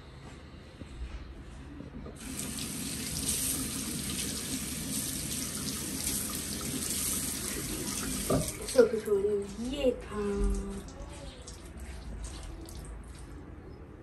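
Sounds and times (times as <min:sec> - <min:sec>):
tap water running into sink: 0:02.2 - 0:09.8.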